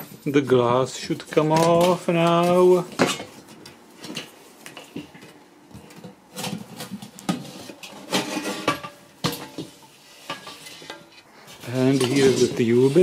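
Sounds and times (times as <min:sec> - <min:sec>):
rubbing and scraping: 0:06.3 - 0:13.0.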